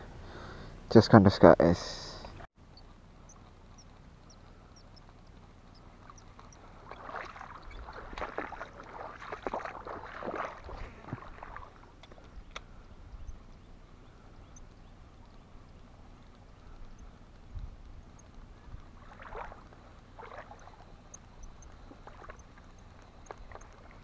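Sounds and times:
small birds chirping: 0:02.3 - 0:19.0, 0:19.6 - 0:24.0
water splashing: 0:06.0 - 0:12.4, 0:18.7 - 0:24.0.

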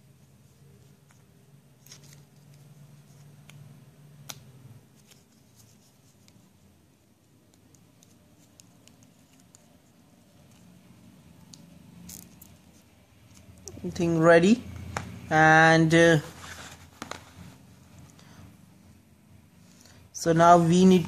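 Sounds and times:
light rustling of paper card: 0:00.2 - 0:13.9, 0:16.1 - 0:18.2.

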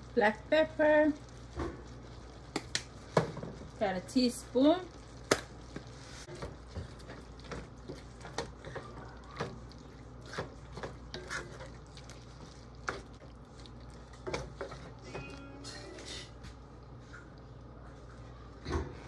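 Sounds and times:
wooden spatula scraping a pan: 0:05.7 - 0:15.4.

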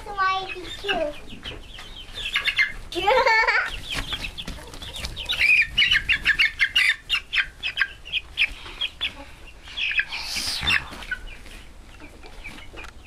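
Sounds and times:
chickens clucking and squawking: 0:00.0 - 0:13.0.

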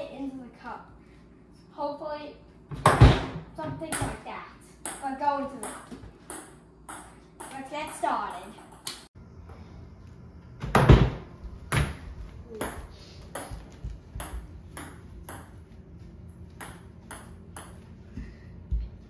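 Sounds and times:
ping pong ball bouncing: 0:04.8 - 0:09.1, 0:12.5 - 0:15.6, 0:16.5 - 0:17.9.

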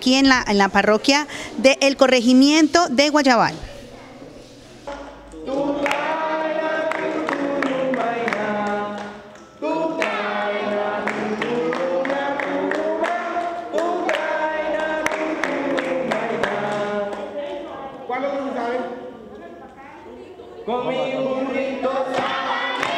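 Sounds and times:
children singing: 0:04.8 - 0:22.9
hand clapping: 0:04.9 - 0:17.3, 0:22.1 - 0:22.9.

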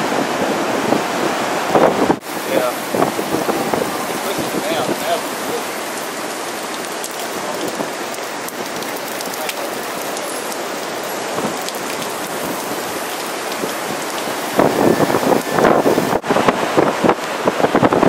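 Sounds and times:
heavy rain pattering: 0:00.0 - 0:18.0.

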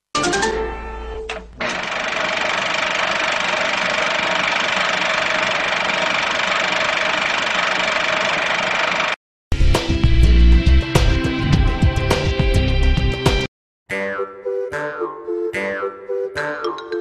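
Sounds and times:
engine-like noisy hum: 0:01.6 - 0:09.2.

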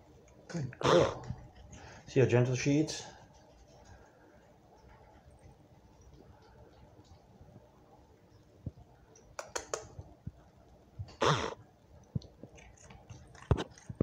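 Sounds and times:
cat crunching treats: 0:12.0 - 0:14.0.

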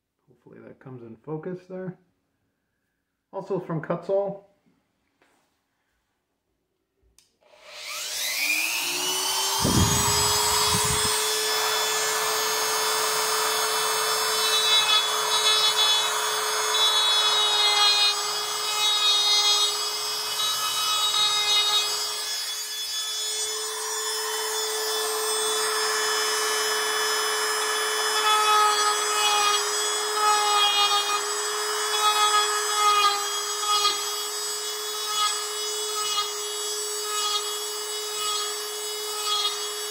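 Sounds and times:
rotary tool whine: 0:07.4 - 0:39.9
burr grinding into wood: 0:08.1 - 0:17.0.

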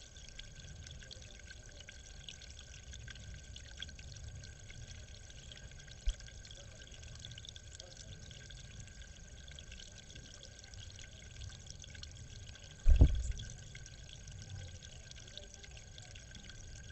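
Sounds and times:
water trickling and dripping: 0:00.0 - 0:16.9
low thump: 0:12.8 - 0:13.5.

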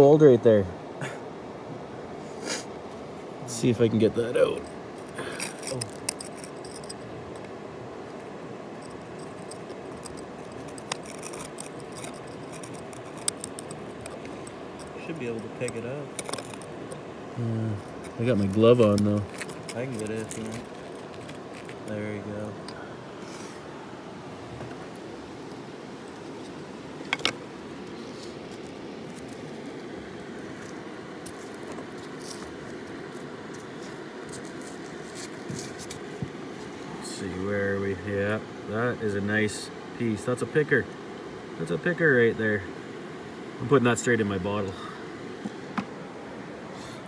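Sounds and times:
river water rushing: 0:00.0 - 0:47.0
steel blade scraping rock: 0:04.5 - 0:07.1, 0:08.8 - 0:16.8, 0:17.7 - 0:22.0.

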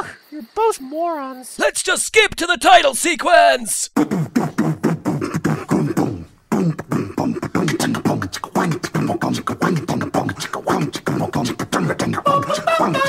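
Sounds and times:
beatboxed vocal rhythm: 0:03.8 - 0:13.0.

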